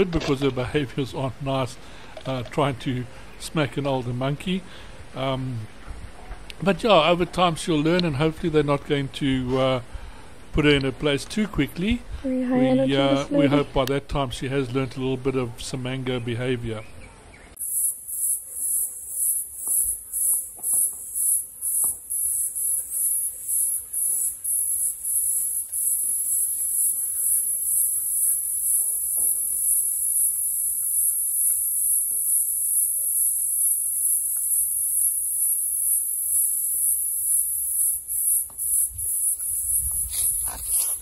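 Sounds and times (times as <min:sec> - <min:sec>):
high-pitched insect chorus buzzing: 0:17.6 - 0:41.0.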